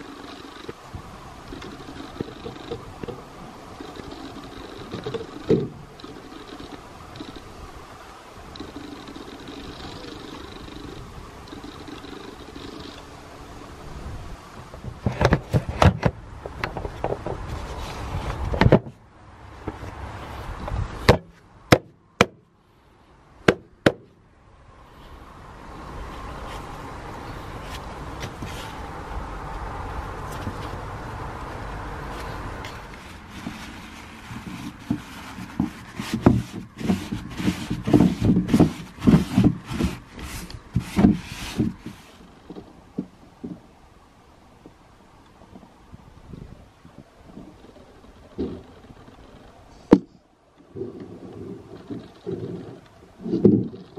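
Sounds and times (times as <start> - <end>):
paper towel wiping plastic: 32.2 - 42.1.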